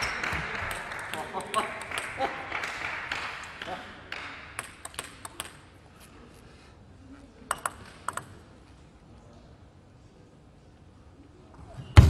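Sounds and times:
faint hall ambience: 0:00.0 - 0:12.0
table tennis ball bouncing: 0:07.5 - 0:08.3.

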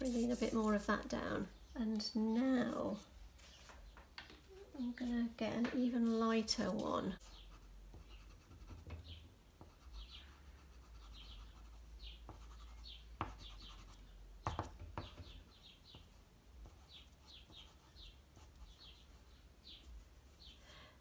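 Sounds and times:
pastel rubbing on paper: 0:00.0 - 0:01.1.

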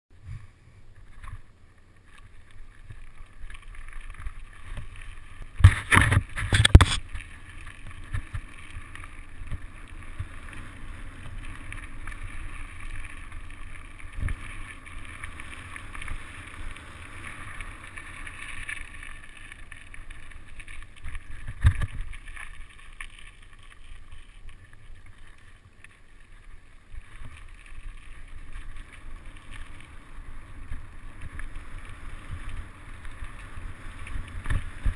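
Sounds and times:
bike tyres rumbling on dirt: 0:00.1 - 0:34.9
wind on microphone: 0:05.6 - 0:07.0.

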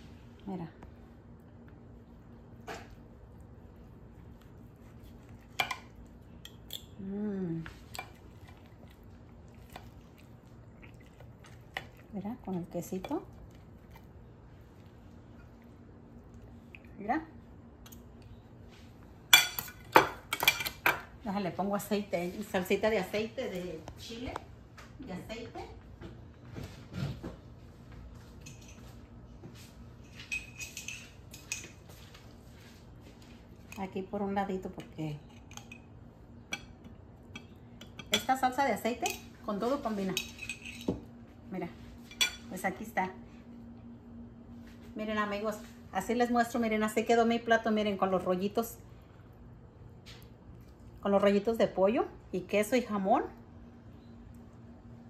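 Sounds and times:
low voiced hum: 0:00.0 - 0:19.2.

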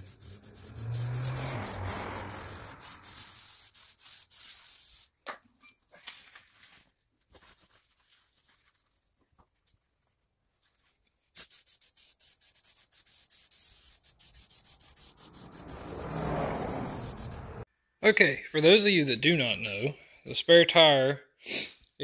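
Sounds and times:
aerosol can spraying: 0:00.0 - 0:05.1, 0:11.4 - 0:17.6.

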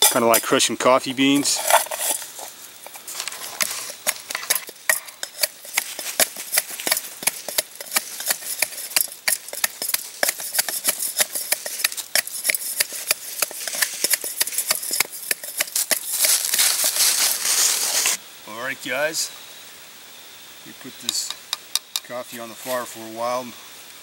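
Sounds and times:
stick pounding in metal cup: 0:02.8 - 0:17.0.

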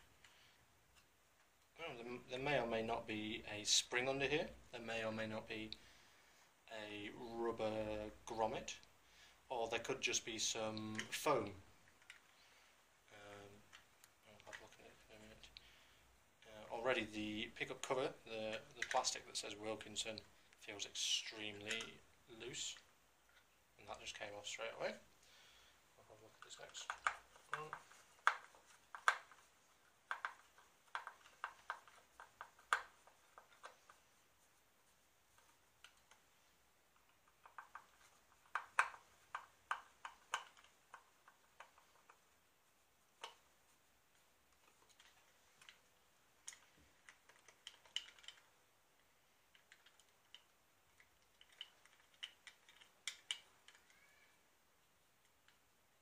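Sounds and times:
plastic clicks and taps: 0:30.1 - 0:34.0, 0:37.0 - 0:42.2.

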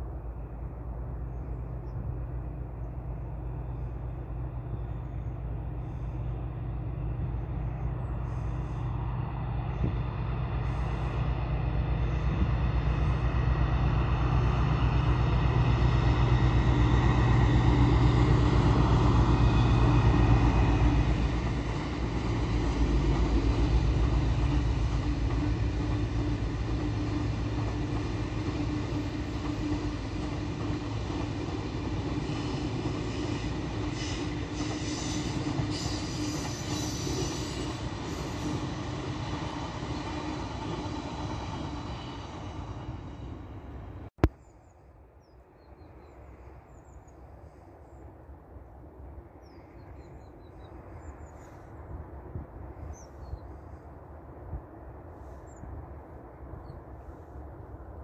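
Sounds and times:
distant locomotive drone: 0:00.0 - 0:58.0
train wagons rolling by: 0:01.1 - 0:44.1.

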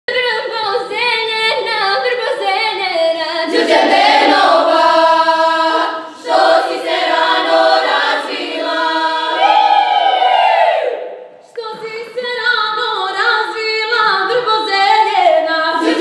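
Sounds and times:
women's choir singing unaccompanied: 0:03.3 - 0:11.1, 0:15.2 - 0:16.0.

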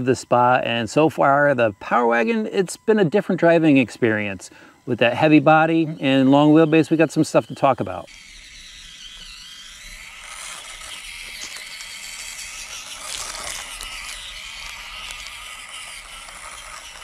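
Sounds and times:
small electric motor whirring: 0:00.0 - 0:17.0
steady high hiss: 0:00.0 - 0:17.0
tyres scraping over rock: 0:10.2 - 0:17.0.

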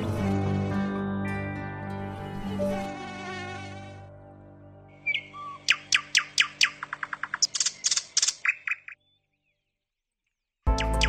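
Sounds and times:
mosquito whine: 0:02.3 - 0:04.1
kingfisher calling: 0:05.0 - 0:09.0.

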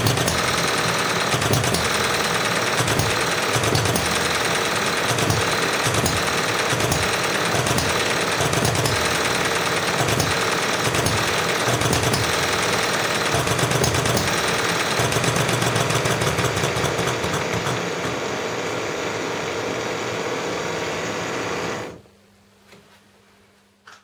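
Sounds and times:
small engine clattering: 0:00.0 - 0:18.2.

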